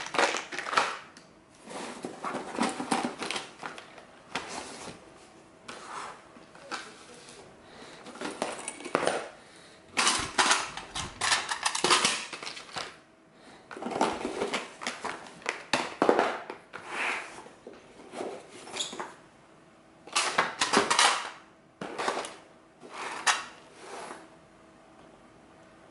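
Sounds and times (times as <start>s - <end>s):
blister packs crinkling: 0.0s - 1.1s
small hard items clattering: 0.0s - 1.1s, 8.0s - 9.4s, 10.0s - 13.0s, 13.7s - 16.5s.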